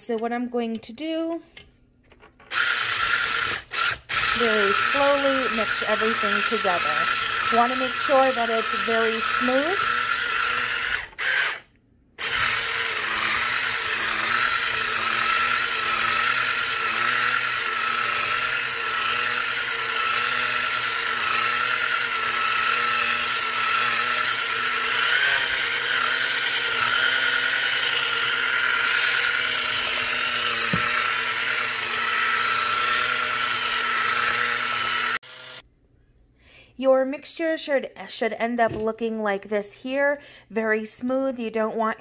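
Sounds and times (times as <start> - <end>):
electric hand mixer whining: 2.5 - 35.6.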